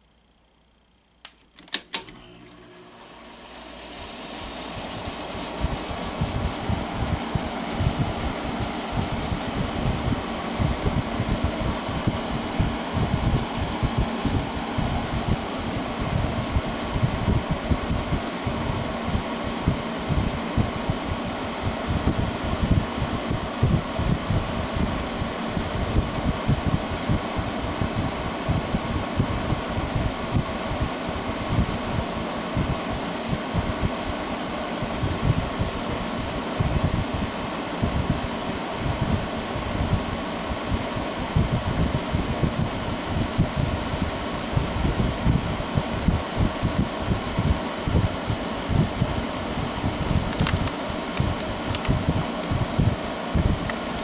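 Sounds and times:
air conditioner fan running: 0:00.0 - 0:54.0
control knob clicks: 0:01.2 - 0:02.2.

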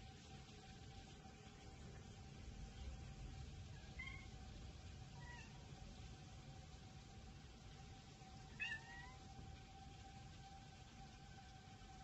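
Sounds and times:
distant warning siren: 0:00.0 - 0:12.0
cat meowing: 0:03.8 - 0:04.4, 0:05.2 - 0:05.6, 0:08.5 - 0:09.3.

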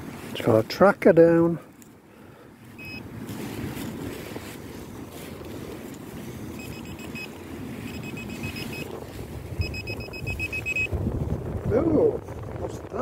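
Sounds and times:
wind rumble on microphone: 0:02.6 - 0:13.0
pinpointer probe beeping: 0:02.8 - 0:03.0, 0:06.6 - 0:08.9, 0:09.6 - 0:11.0.

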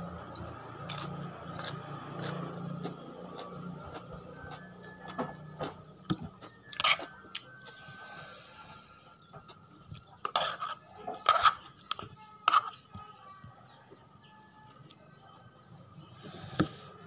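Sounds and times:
chewing: 0:00.8 - 0:07.8
metal spoon scraping plastic bowl: 0:06.6 - 0:07.2, 0:10.2 - 0:12.8.

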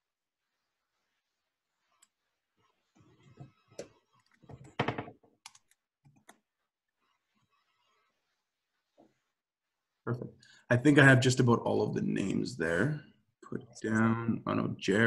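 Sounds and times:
keyboard typing: 0:03.8 - 0:06.4.

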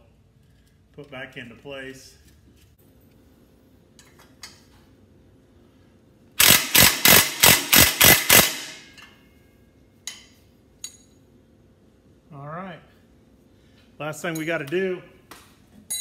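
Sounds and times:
ratchet wrench ratcheting: 0:06.4 - 0:08.8.

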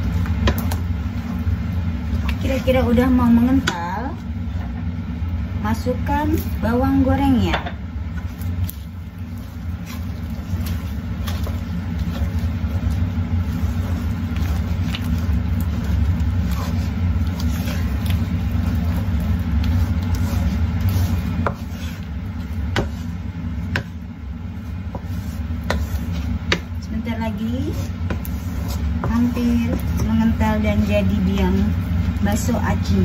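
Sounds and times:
loud steady low hum: 0:00.0 - 0:33.0
spatula scraping paste in pan: 0:08.2 - 0:32.6
spatula tapping pan: 0:22.6 - 0:24.1, 0:27.8 - 0:31.2.

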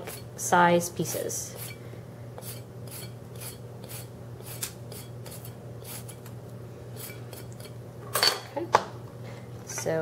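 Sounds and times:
vegetable peeler scraping carrot: 0:01.1 - 0:01.8, 0:02.4 - 0:06.3.

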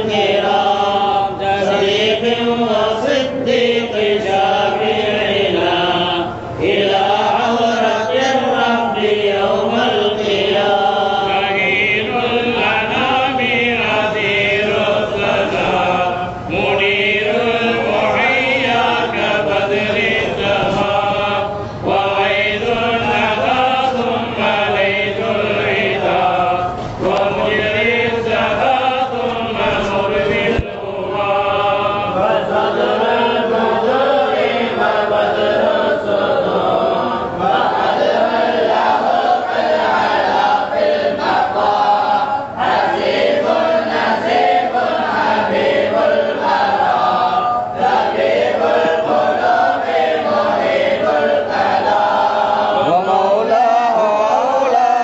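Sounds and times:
men chanting together: 0:00.0 - 0:55.0.

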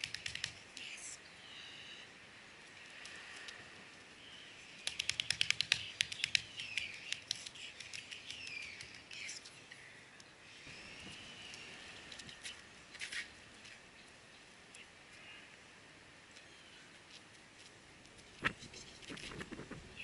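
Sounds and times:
sharp clicks: 0:00.0 - 0:00.6, 0:04.8 - 0:09.2
birds chirping and singing: 0:05.7 - 0:12.6.

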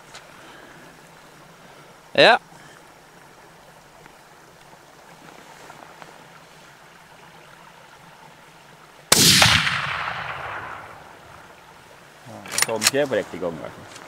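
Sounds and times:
rifle shot with echo: 0:09.1 - 0:11.4.

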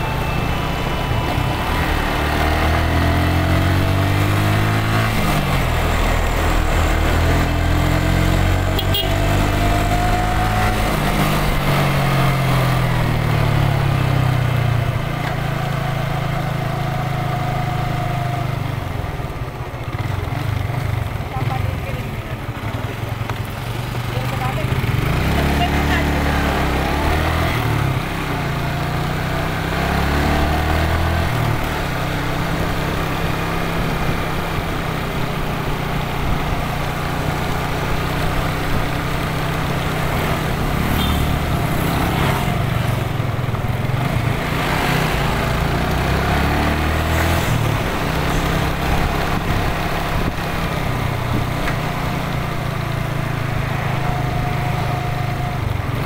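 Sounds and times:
motorcycle engines: 0:00.0 - 0:56.0
scooter engine revving: 0:19.8 - 0:56.0.

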